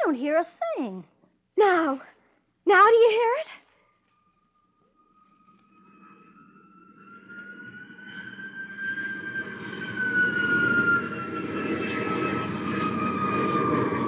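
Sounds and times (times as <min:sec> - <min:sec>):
jet aircraft flying over: 0:05.0 - 0:14.0.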